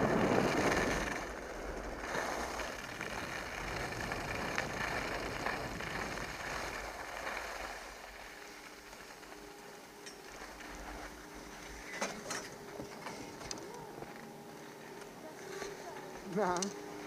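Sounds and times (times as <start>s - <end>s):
skis scraping over snow: 0.0s - 17.0s.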